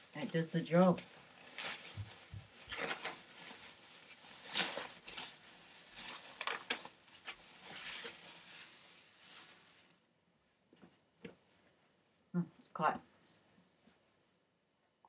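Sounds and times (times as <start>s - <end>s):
plastic packaging crinkling: 0.0s - 10.0s
fabric rustling: 0.0s - 10.1s.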